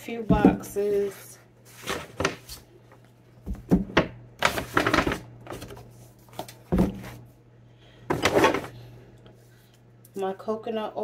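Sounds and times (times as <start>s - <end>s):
steady low hum: 0.0s - 11.0s
paper bag rustling: 4.4s - 7.2s.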